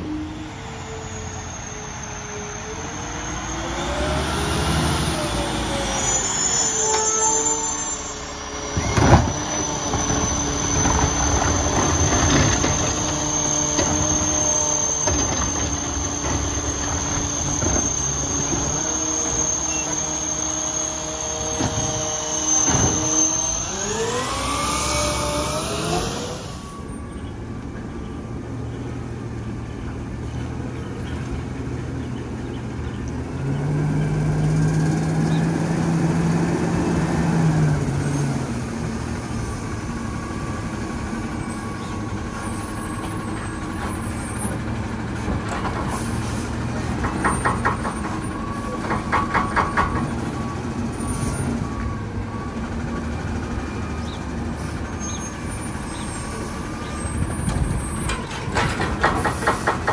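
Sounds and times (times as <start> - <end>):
garbage truck engine revving: 0.2 - 27.0, 31.9 - 59.9.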